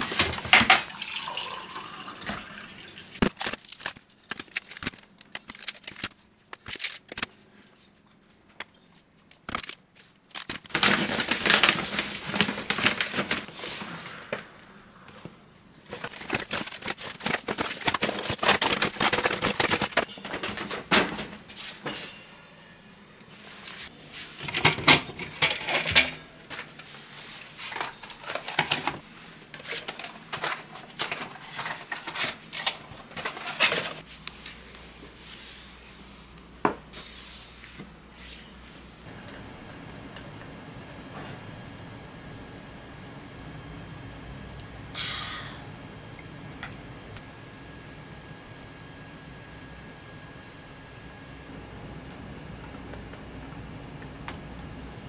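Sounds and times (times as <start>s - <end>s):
bottles and tins clattering on shelves: 0.0s - 1.0s, 24.4s - 26.7s.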